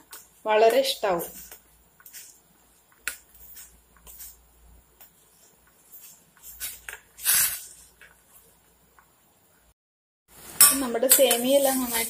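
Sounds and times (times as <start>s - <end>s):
spoon stirring in a steel pan: 0.0s - 8.3s, 10.6s - 12.0s
water boiling: 10.3s - 12.0s.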